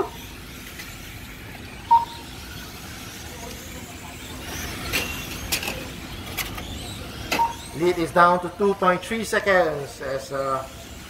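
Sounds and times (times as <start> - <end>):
radio-control trucks running: 0.0 - 11.0
steady background noise: 0.0 - 11.0
short high beep: 1.9 - 2.2.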